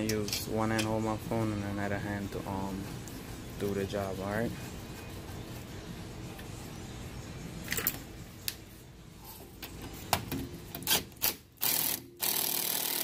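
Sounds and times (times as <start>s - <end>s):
ratchet clicking: 10.7s - 13.0s.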